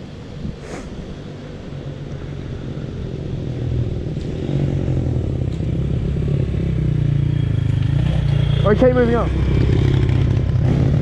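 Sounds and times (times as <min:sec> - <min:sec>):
dirt bike approaching: 0:00.5 - 0:11.0
dirt bike engine idling: 0:05.9 - 0:10.6.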